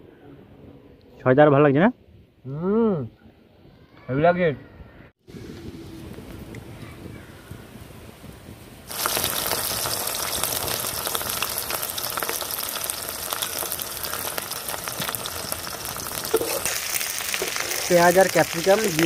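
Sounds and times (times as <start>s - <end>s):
vegetables sizzling in hot oil: 8.9s - 19.0s.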